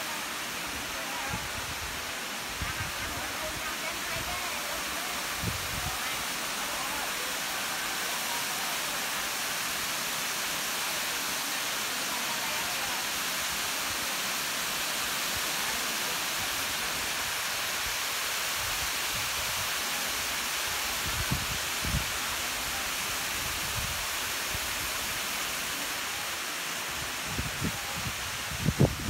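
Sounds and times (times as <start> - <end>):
waterfall rushing over rocks: 0.0 - 29.0.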